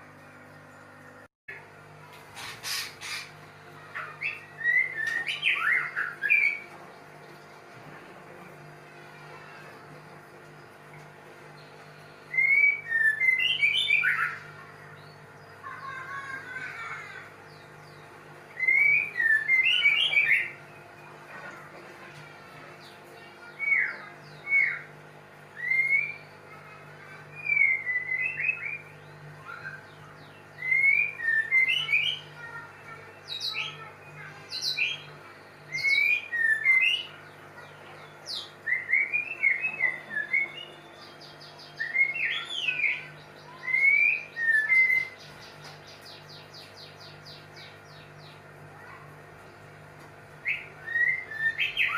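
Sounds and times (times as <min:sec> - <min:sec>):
steady low hum: 0:00.0 - 0:51.9
bird singing whistled notes: 0:50.5 - 0:51.9.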